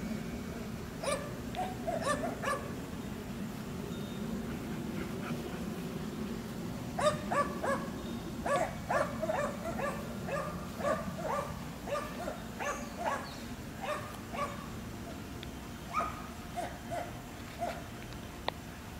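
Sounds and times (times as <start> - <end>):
dog barking: 1.0 - 2.7, 7.0 - 14.7, 15.9 - 17.8.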